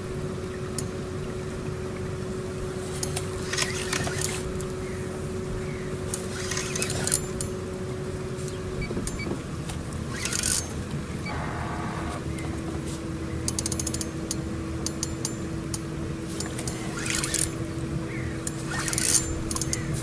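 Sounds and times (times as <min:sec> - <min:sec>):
steady low hum: 0:00.0 - 0:20.0
fishing reel ratcheting and whirring: 0:03.0 - 0:04.8, 0:06.0 - 0:07.6, 0:10.0 - 0:12.2, 0:13.5 - 0:17.6, 0:18.4 - 0:20.0.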